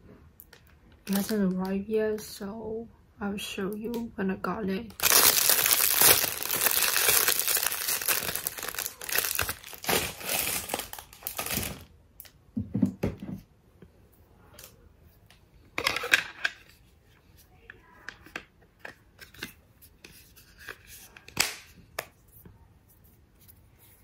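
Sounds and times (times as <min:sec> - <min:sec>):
plastic bag crinkling: 0:01.0 - 0:01.6, 0:04.9 - 0:11.9.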